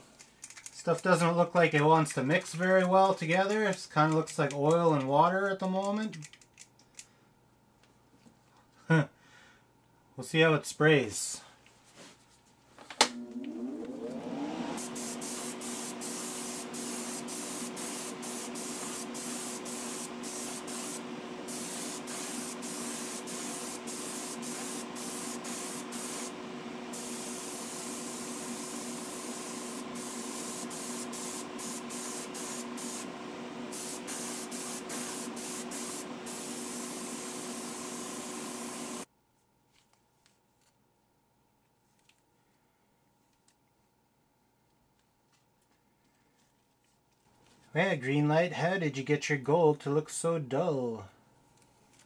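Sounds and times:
air compressor hum: 0:13.0 - 0:39.1
airbrush spraying hiss: 0:14.8 - 0:39.1.

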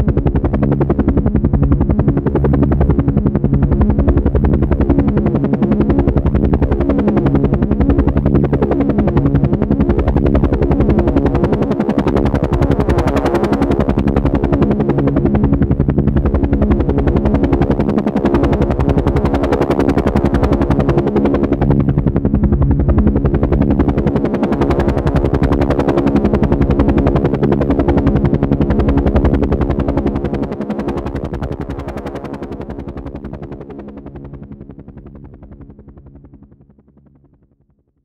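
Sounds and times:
helicopter rotor chop: 0:00.0 - 0:37.7.

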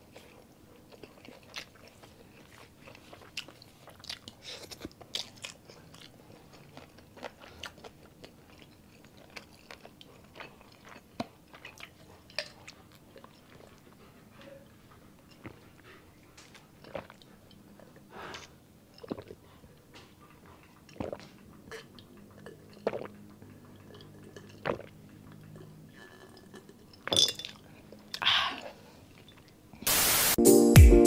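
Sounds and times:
gulps and swallows: 0:16.8 - 0:19.7, 0:20.3 - 0:27.1.

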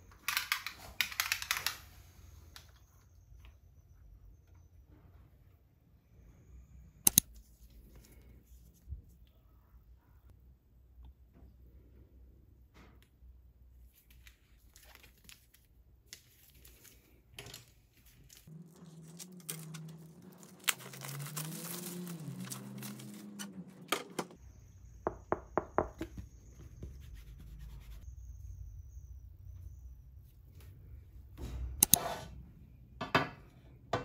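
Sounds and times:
plastic wrap tearing and crumpling: 0:18.3 - 0:23.6.

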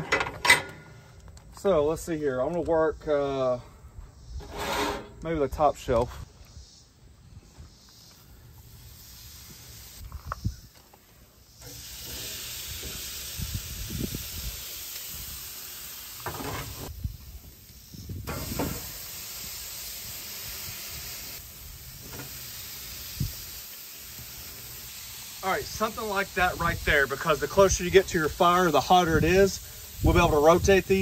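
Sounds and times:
knocks and clanks on metal rack: 0:00.0 - 0:01.0
smoker cabinet hiss: 0:00.3 - 0:31.0.

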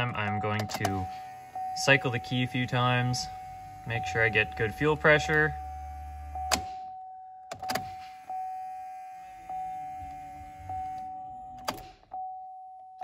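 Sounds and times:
dashboard warning chime: 0:00.0 - 0:13.0
ignition key clicks: 0:00.2 - 0:02.5, 0:03.4 - 0:06.8, 0:07.5 - 0:09.2, 0:10.0 - 0:12.1.

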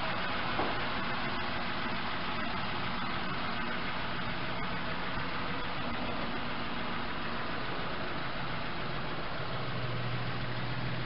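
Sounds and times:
engine idling: 0:00.0 - 0:11.0.

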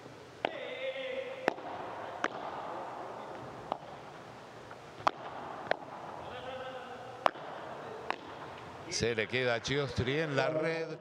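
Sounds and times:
crowd noise: 0:00.0 - 0:11.0
ball knocking off rackets: 0:01.4 - 0:02.7, 0:05.0 - 0:06.2, 0:07.2 - 0:08.7.

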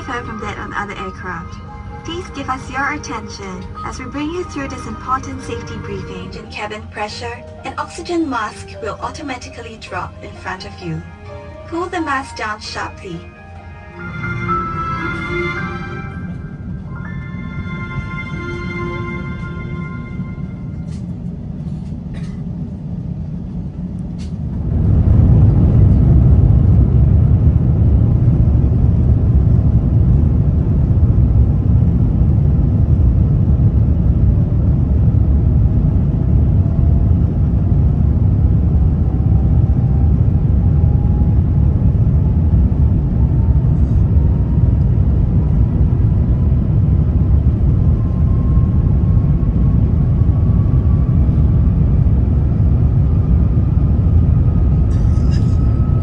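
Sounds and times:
loud steady rumble: 0:00.0 - 0:56.0
faint rising tone: 0:12.9 - 0:21.2.

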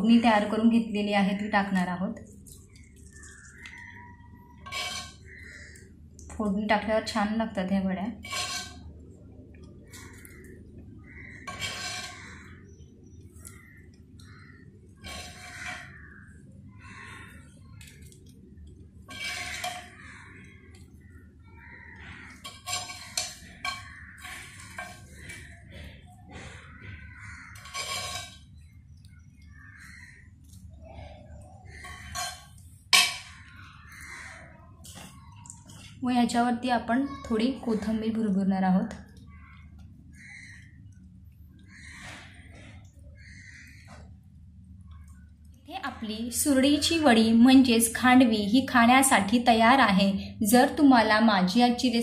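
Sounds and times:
low steady hum: 0:00.0 - 0:52.0
metal spoon scraping: 0:02.8 - 0:05.7, 0:08.1 - 0:08.9, 0:11.4 - 0:12.6, 0:15.0 - 0:16.3, 0:19.0 - 0:20.8, 0:22.0 - 0:26.6, 0:27.2 - 0:28.8, 0:31.7 - 0:33.6.

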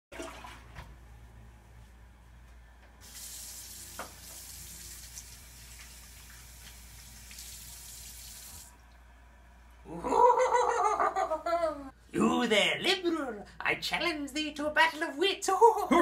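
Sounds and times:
water running into sink: 0:00.1 - 0:00.8, 0:03.0 - 0:08.8.

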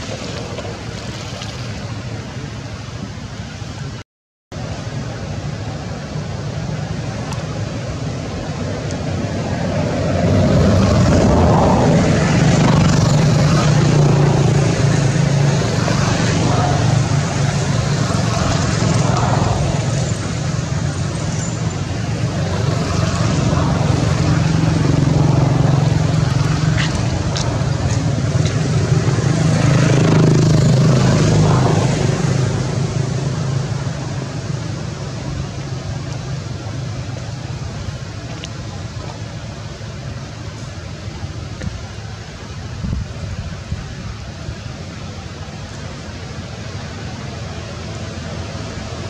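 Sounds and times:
motor engine humming: 0:05.2 - 0:42.6.

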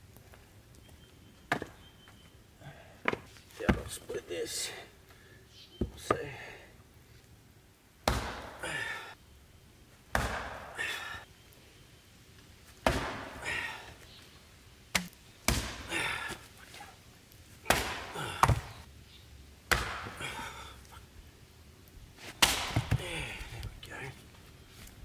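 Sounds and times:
hatchet chopping log: 0:08.0 - 0:08.7, 0:10.1 - 0:10.8, 0:12.8 - 0:13.5, 0:14.9 - 0:16.3, 0:17.6 - 0:18.8, 0:19.7 - 0:20.3, 0:22.4 - 0:23.3.

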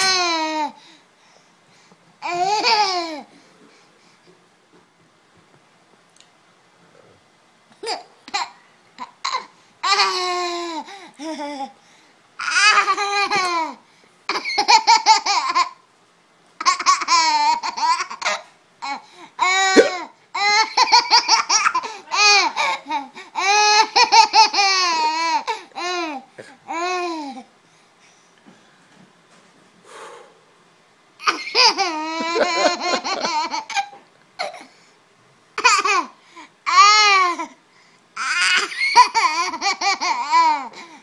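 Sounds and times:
baby giggling: 0:12.4 - 0:15.8, 0:16.6 - 0:27.4, 0:31.2 - 0:34.6.

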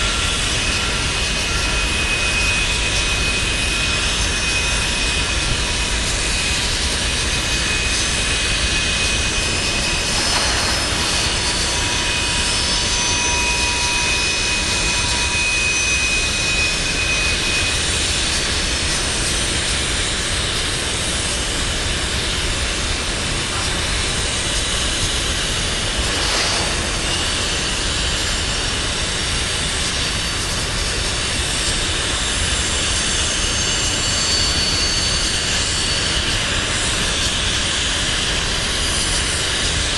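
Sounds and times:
high-pitched wheel squeals: 0:00.0 - 0:20.1, 0:26.7 - 0:39.6
freight train rolling past: 0:00.0 - 0:39.9.

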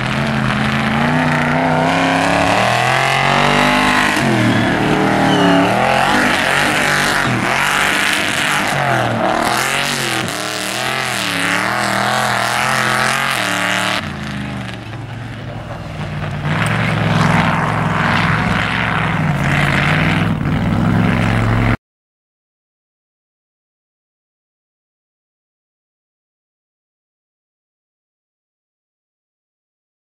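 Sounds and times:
truck engine revving: 0:00.0 - 0:21.8.

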